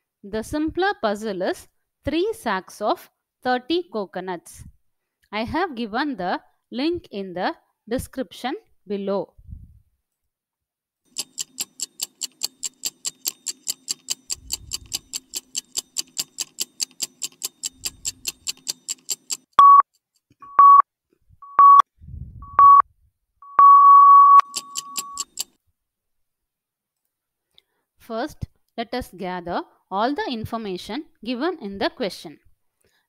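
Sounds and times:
fast clock ticking: 11.1s - 19.6s, 24.4s - 25.5s
short electronic beeps: 19.6s - 20.8s, 21.4s - 21.8s, 22.4s - 22.8s, 23.4s - 25.5s.

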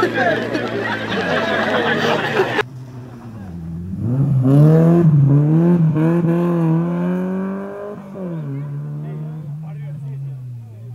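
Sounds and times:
rally car engine accelerating: 0.8s - 10.9s.

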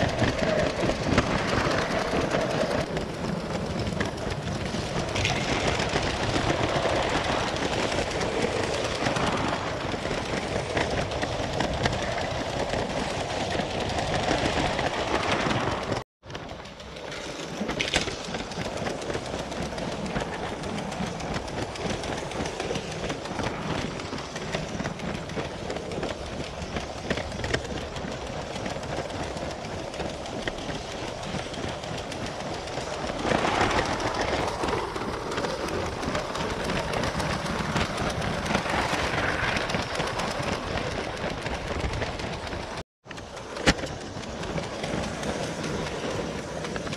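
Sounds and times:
toy train rattling whir: 0.0s - 46.9s
wheels clicking on track: 0.0s - 46.9s.

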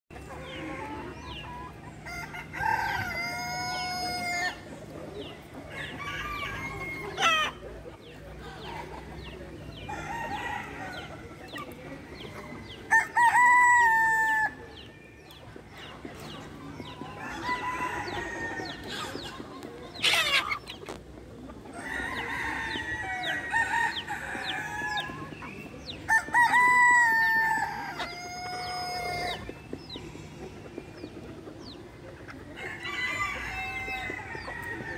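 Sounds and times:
roosters crowing: 0.1s - 7.8s, 9.7s - 15.1s, 16.8s - 20.6s, 21.7s - 29.7s, 32.4s - 34.9s
hens clucking: 0.1s - 34.9s.

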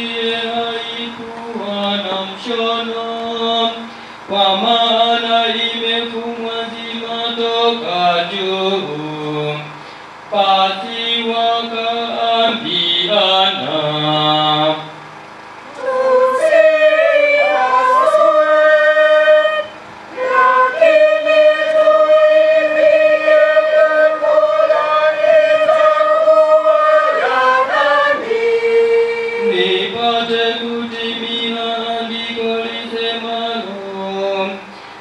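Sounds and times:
low chanted reading: 0.0s - 34.8s
choir singing long notes: 15.6s - 34.6s.

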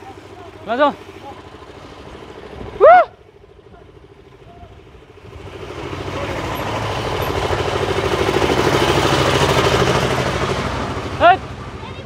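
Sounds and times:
concrete mixer engine humming: 0.0s - 12.0s.

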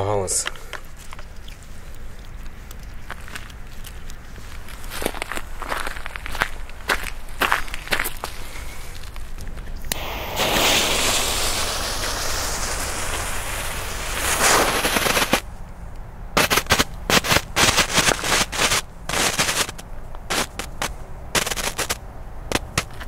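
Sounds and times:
firework hissing: 9.8s - 15.5s, 16.4s - 22.9s
firework cracks and bangs: 9.9s - 15.5s, 16.4s - 23.0s.

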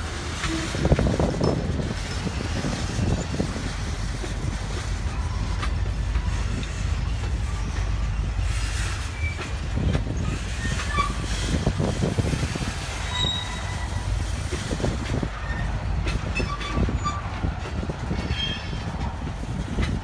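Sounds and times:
train wheels rumbling on rails: 0.0s - 20.0s
high-pitched wheel squeals: 10.2s - 11.3s, 13.0s - 14.1s, 18.2s - 18.8s.

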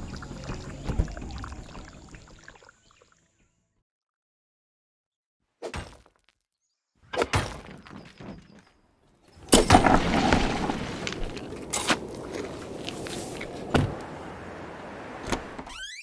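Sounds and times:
rubble crumbling and spilling: 9.4s - 13.7s.

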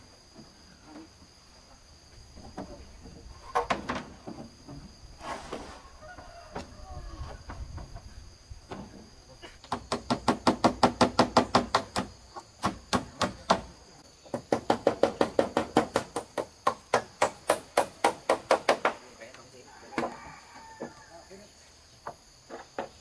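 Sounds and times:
rapid hand tool strikes: 9.7s - 13.7s, 14.3s - 19.0s.

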